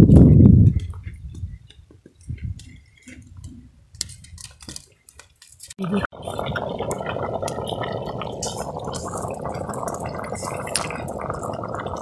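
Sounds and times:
water boiling in a pot: 5.9s - 12.0s.

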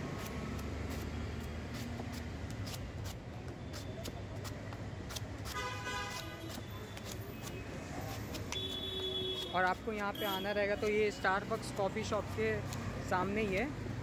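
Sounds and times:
street traffic rumble: 0.0s - 14.0s
vehicle horn honking: 5.6s - 6.4s, 8.6s - 10.6s.

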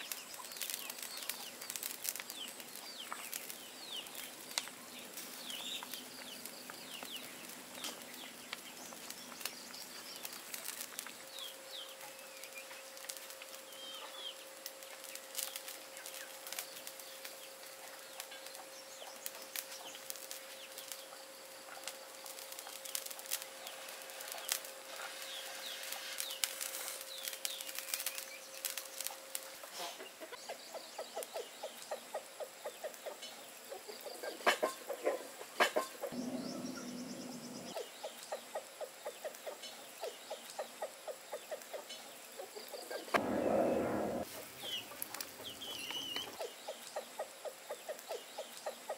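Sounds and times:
wood fire crackling: 0.0s - 29.8s, 42.6s - 47.2s
birds chirping: 13.6s - 48.9s
broth boiling hard: 43.1s - 44.8s.

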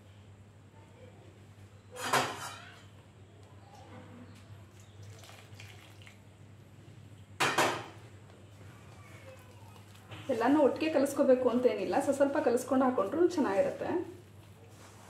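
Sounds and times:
metal cookware clanking: 2.0s - 2.8s
hot water pouring into flour: 4.7s - 6.2s
hand mixing dough: 8.5s - 15.0s.

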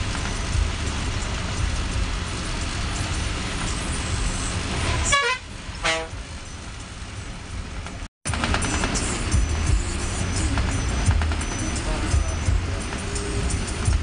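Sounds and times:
bus engine and road noise: 0.0s - 14.0s
horn sounding: 4.8s - 6.3s.

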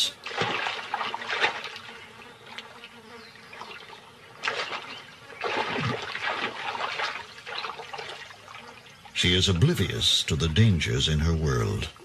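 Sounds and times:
water splashing and sloshing: 0.0s - 2.9s, 3.5s - 9.2s
faint steady buzz: 0.0s - 12.0s.

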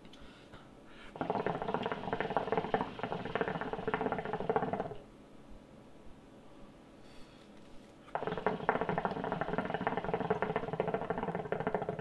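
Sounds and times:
water bubbling in a hookah: 1.2s - 5.1s, 8.1s - 12.0s.

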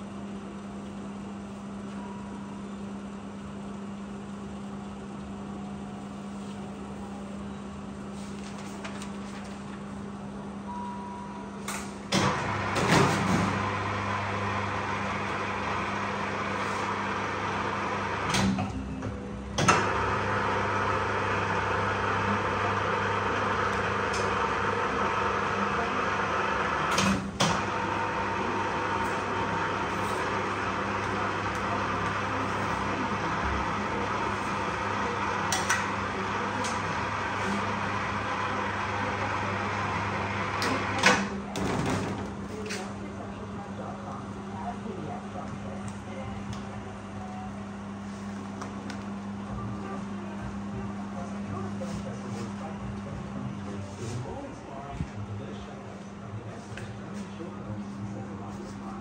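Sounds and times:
machine hum: 11.3s - 41.0s.

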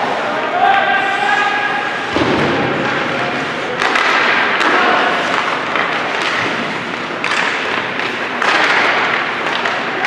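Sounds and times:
crowd chatter in hall: 0.0s - 6.9s.

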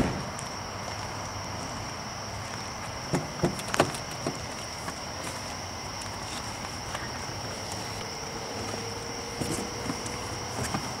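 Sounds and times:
loud thump: 0.0s - 0.3s
night insects chirring: 0.0s - 11.0s.

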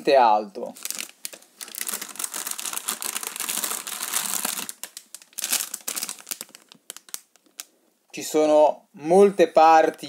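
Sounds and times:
plastic bags crinkling: 0.7s - 7.8s.

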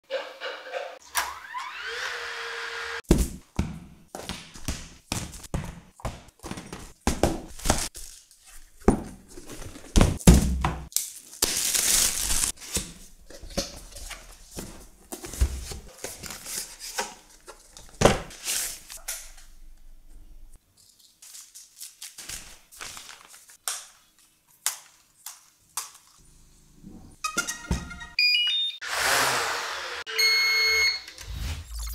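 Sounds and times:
packaging rustling and tearing: 7.5s - 10.0s, 10.9s - 19.4s, 20.8s - 26.0s.

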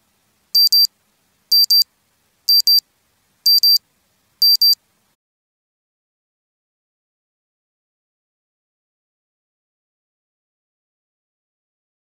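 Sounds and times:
timer alarm double beeps: 0.6s - 0.9s, 1.5s - 1.8s, 2.5s - 2.8s, 3.5s - 3.8s, 4.4s - 4.8s.

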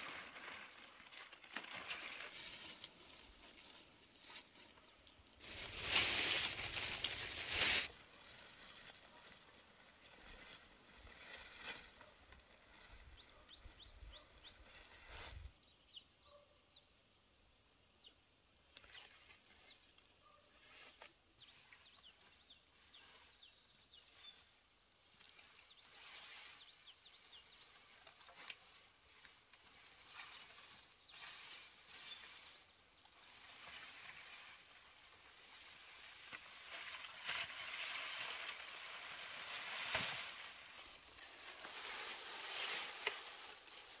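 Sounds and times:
dry leaves rustling and crackling: 0.0s - 15.5s, 25.1s - 44.0s.

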